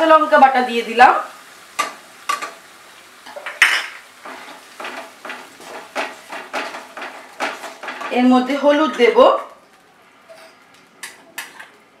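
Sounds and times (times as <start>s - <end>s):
wooden spatula scraping a pan: 4.2s - 8.6s.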